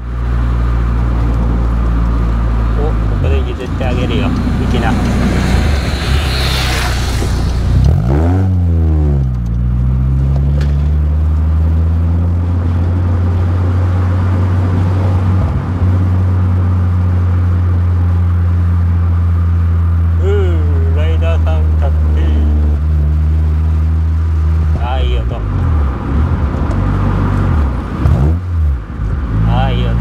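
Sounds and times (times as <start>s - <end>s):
car engine revving and droning: 0.0s - 30.0s
road noise in car cabin: 0.0s - 30.0s.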